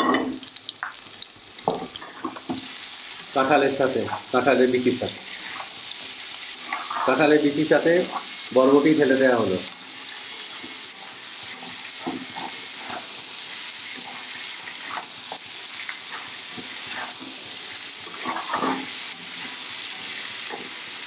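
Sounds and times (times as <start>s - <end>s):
food sizzling in hot oil: 0.0s - 21.0s
spoon scraping a pan: 1.5s - 21.0s.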